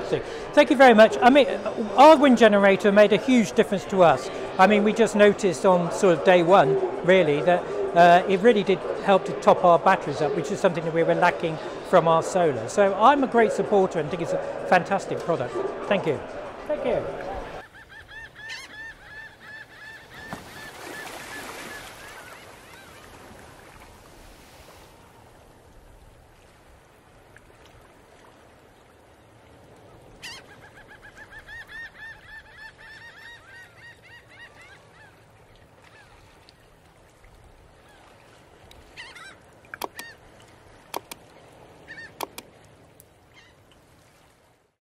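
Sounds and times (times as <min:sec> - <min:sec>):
birds calling: 0:13.0 - 0:23.1, 0:30.2 - 0:36.2, 0:38.9 - 0:40.3, 0:41.0 - 0:42.6
sharp clicks or knocks: 0:39.8 - 0:40.1, 0:41.0 - 0:41.2, 0:42.2 - 0:42.5.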